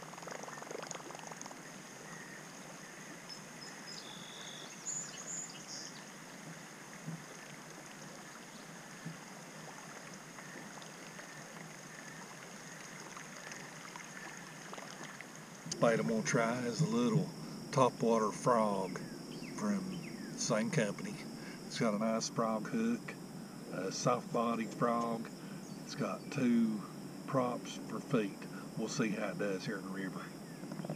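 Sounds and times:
hiss of moving water: 5.9 - 17.7
lure splashing and gurgling water: 6.5 - 17.7.

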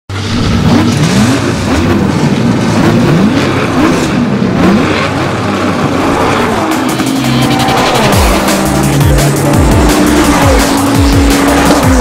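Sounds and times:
low engine hum: 0.1 - 12.0
racing engines revving: 0.1 - 12.0.

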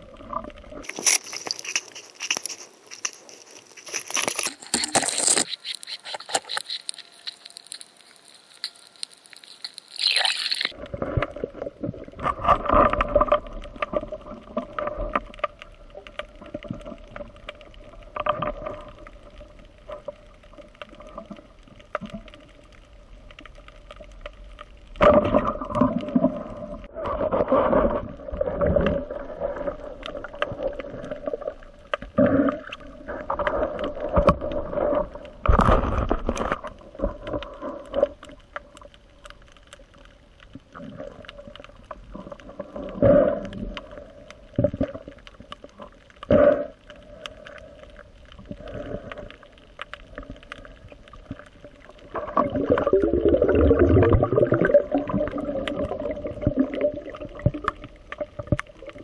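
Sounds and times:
faint steady hum: 0.0 - 59.0
underwater bubbling and water noise: 0.0 - 59.0
rumbling surge of water: 52.0 - 58.5.

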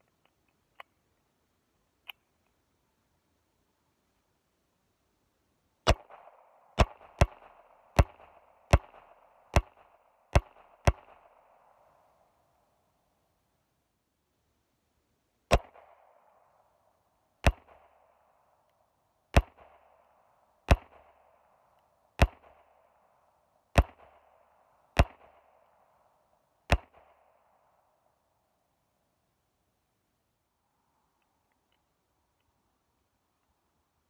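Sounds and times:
suppressed pistol shots: 5.9 - 11.4.

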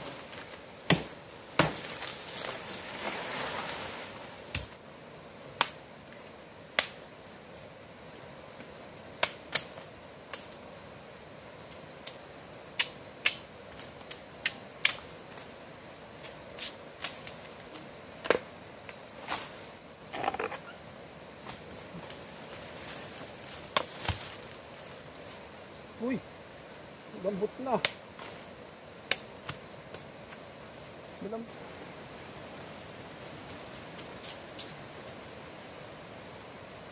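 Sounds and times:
machete chopping wood: 0.8 - 2.1.

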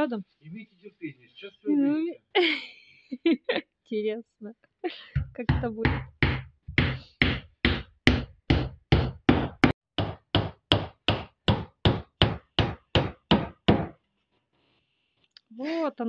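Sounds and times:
hammer nailing into wood: 5.2 - 14.0.

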